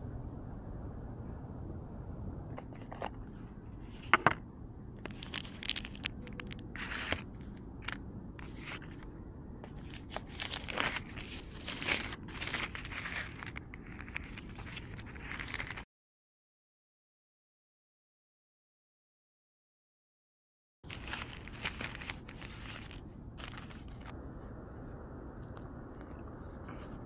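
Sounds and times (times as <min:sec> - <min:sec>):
paper crinkling and tearing: 0:05.0 - 0:09.0, 0:09.6 - 0:15.9, 0:20.8 - 0:24.1.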